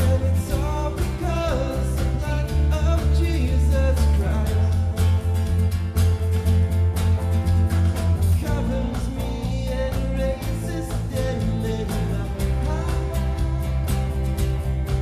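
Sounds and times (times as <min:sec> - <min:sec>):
person singing: 0:00.0 - 0:05.6, 0:07.9 - 0:15.0
bass and guitar: 0:00.0 - 0:15.0
drums keeping a steady beat: 0:00.0 - 0:15.0.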